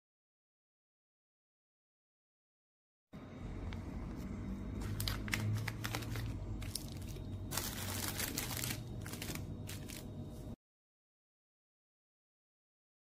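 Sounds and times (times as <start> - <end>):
low steady hum: 3.2 - 10.6
plastic packets crinkling: 4.8 - 10.1.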